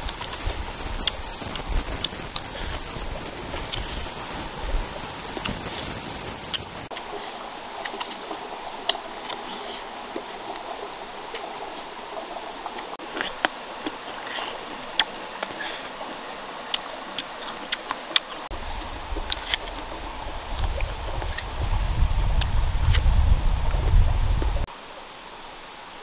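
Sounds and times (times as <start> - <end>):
crunchy fruit chewing: 12.8 - 21.6.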